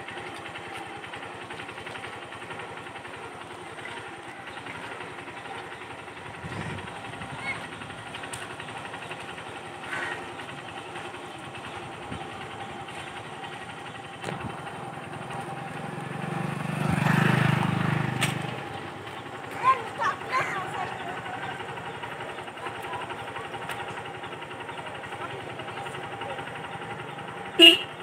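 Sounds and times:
motorcycle engine passing by: 0:06.2 - 0:09.2, 0:11.8 - 0:24.0.

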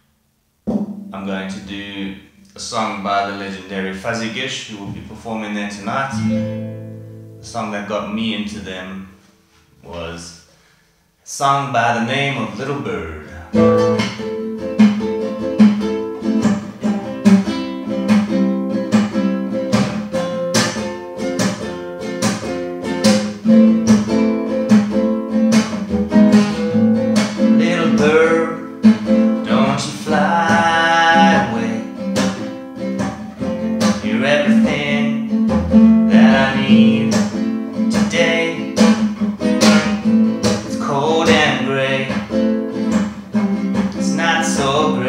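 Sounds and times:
acoustic guitar strumming: 0:00.7 - 0:09.9, 0:12.0 - 0:45.0
man singing: 0:07.4 - 0:09.1, 0:11.3 - 0:14.0, 0:27.4 - 0:28.8, 0:29.4 - 0:32.0, 0:33.7 - 0:35.4, 0:36.0 - 0:42.4, 0:43.9 - 0:45.0.

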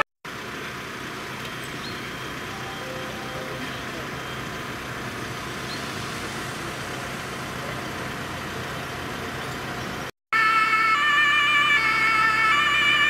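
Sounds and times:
vehicle engine: 0:00.0 - 0:10.1
traffic noise: 0:00.0 - 0:13.0
two-tone emergency siren: 0:02.0 - 0:07.7, 0:10.3 - 0:13.0.

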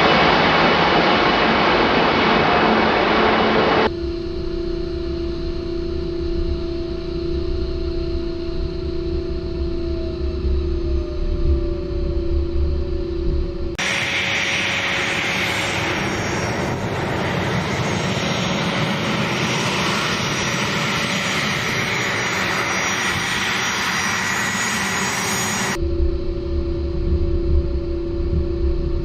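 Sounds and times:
jet engines rushing hiss: 0:00.0 - 0:03.9, 0:13.8 - 0:25.8
low hum: 0:00.0 - 0:29.0.

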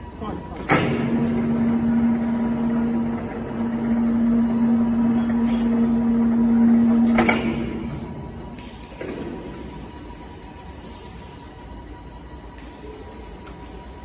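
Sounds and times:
crane hoist motor humming: 0:00.0 - 0:14.0.

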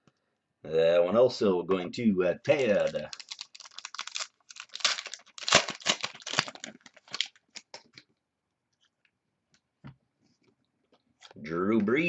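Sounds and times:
foil wrapper crinkling: 0:02.5 - 0:08.0.

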